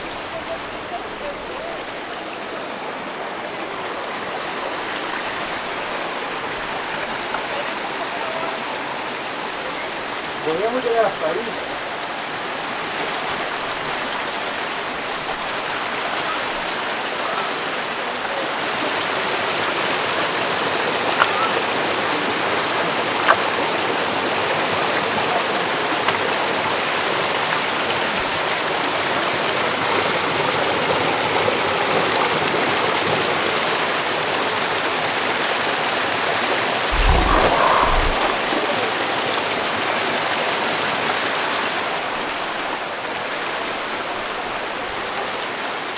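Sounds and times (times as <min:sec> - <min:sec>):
creek rushing over boulders: 0:00.0 - 0:45.9
low rumble: 0:36.9 - 0:39.0.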